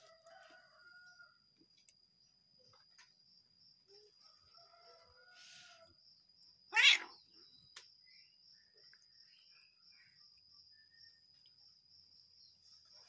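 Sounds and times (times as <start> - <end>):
cat angry cry: 6.7 - 7.2.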